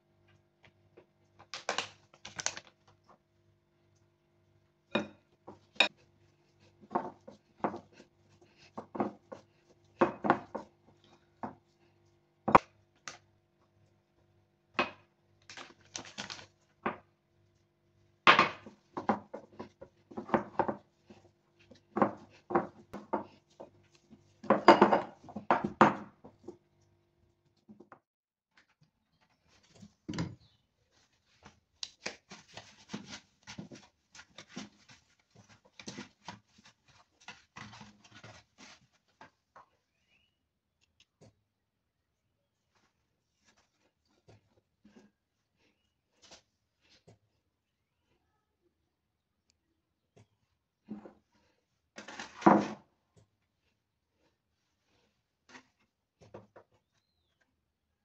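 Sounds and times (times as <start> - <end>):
dough mixed in ceramic bowl: 4.0 - 14.0.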